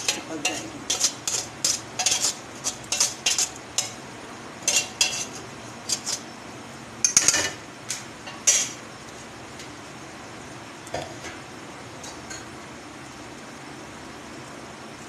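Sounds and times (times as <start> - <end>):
metal turner scraping a pot: 0.0 - 4.0, 4.6 - 6.3, 8.3 - 8.8.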